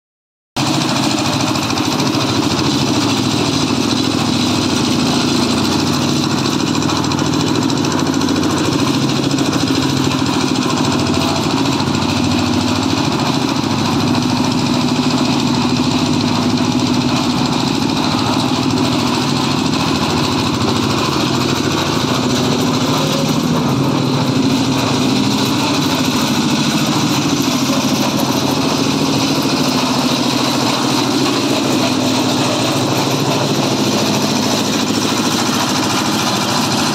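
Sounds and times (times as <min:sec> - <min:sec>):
small diesel engine running: 0:00.6 - 0:36.9.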